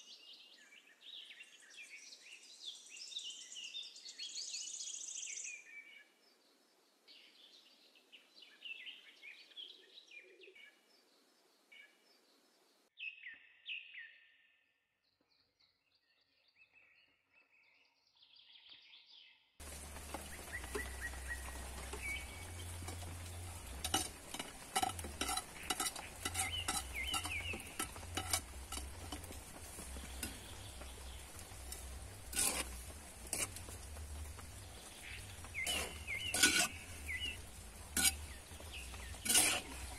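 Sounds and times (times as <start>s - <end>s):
birds chirping faintly: 0.0s - 39.9s
food sizzling in pot: 19.6s - 39.9s
ladle clinking against pot: 21.9s - 30.5s.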